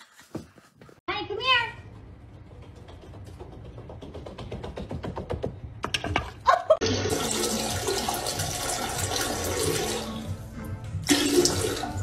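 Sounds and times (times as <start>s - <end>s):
music: 7.2s - 12.0s.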